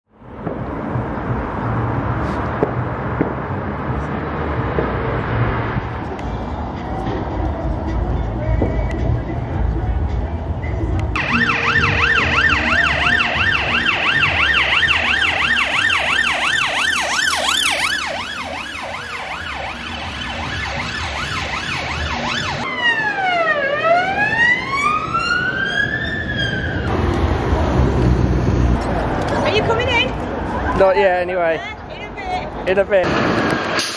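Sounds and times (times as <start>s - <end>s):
police siren yelp and wail: 11.2s - 26.9s.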